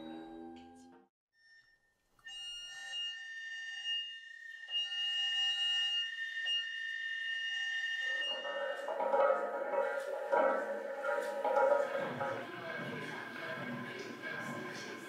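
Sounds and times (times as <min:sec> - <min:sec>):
high-pitched electronic drone: 0:02.4 - 0:15.0
mallet percussion music: 0:08.1 - 0:15.0.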